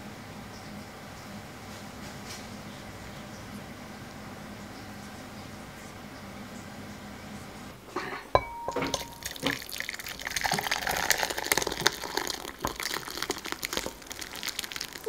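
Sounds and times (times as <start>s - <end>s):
ladle clinking against bowl: 7.9s - 9.6s
soup pouring and splashing: 8.7s - 15.0s.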